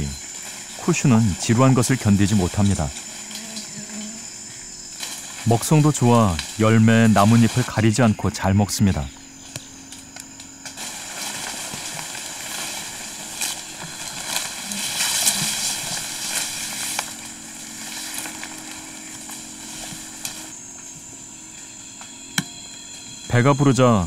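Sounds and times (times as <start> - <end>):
leaves rustling: 0.0 - 24.0
twigs snapping: 4.9 - 5.6, 6.2 - 7.8, 9.4 - 22.8.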